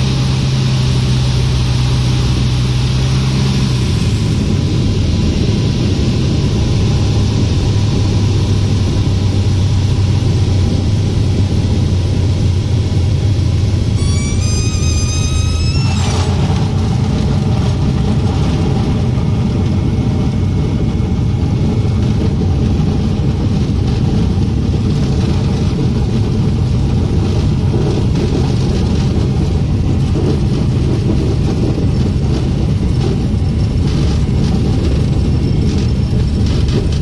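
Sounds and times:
aircraft engine droning: 0.0s - 37.0s
high rising whistle: 13.9s - 17.0s.

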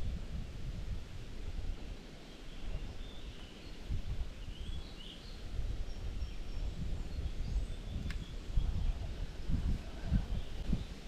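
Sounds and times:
wind rumbling on microphone: 0.0s - 11.0s
small birds chirping: 1.8s - 11.0s.

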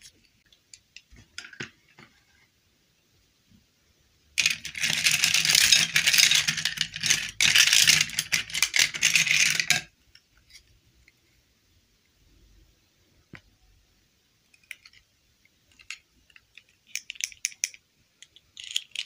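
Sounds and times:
plastic toys clattering: 4.4s - 9.9s, 14.6s - 15.1s, 15.7s - 19.0s.

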